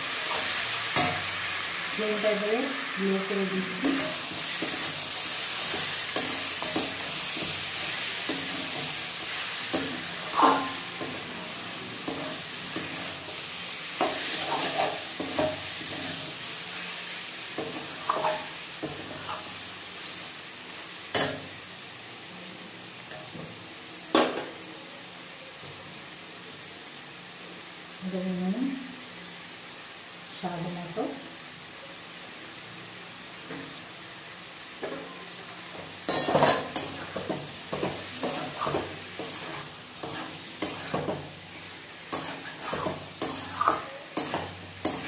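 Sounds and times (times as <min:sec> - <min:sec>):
chicken sizzling in hot oil: 0:00.0 - 0:45.0
metal spatula scraping a pan: 0:03.7 - 0:16.5, 0:17.5 - 0:19.6, 0:36.0 - 0:45.0.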